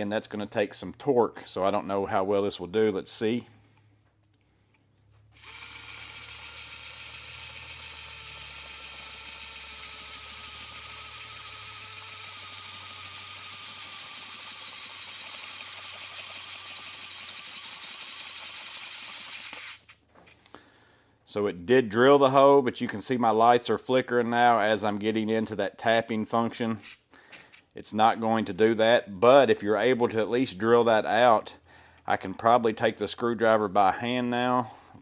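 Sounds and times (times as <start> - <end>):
electric screwdriver motor whine: 5.3 - 19.9.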